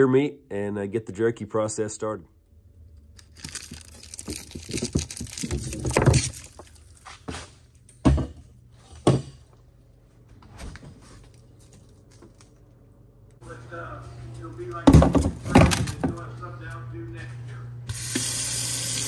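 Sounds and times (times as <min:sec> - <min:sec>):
plastic packages rustling and crinkling: 0:03.2 - 0:07.6
frozen packages knocking: 0:03.3 - 0:06.8, 0:14.8 - 0:16.2
heavy thumps: 0:14.8 - 0:16.2.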